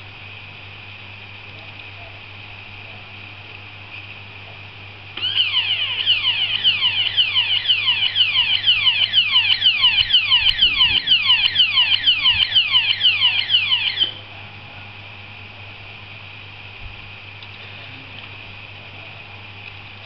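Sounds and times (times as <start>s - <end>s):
electronic alarm falling sweeps: 5.2s - 14.2s.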